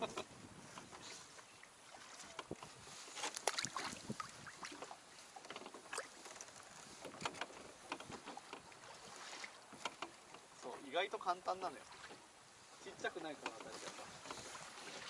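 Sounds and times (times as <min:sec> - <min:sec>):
water lapping against a boat: 0:00.0 - 0:15.0.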